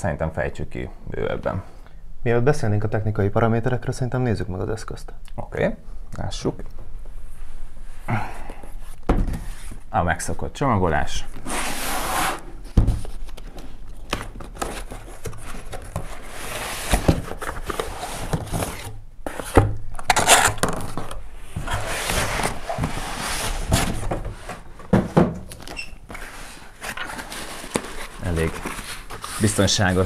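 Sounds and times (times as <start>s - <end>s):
boxes knocking on table: 9.1s - 9.4s, 23.7s - 25.5s
cardboard rubbing and scraping: 11.4s - 24.8s, 26.1s - 30.0s.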